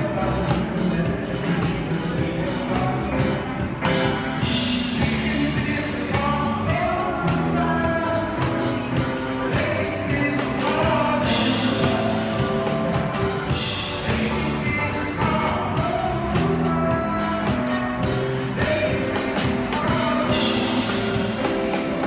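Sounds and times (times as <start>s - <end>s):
drum kit: 0.0s - 22.0s
electronic keyboard: 0.0s - 22.0s.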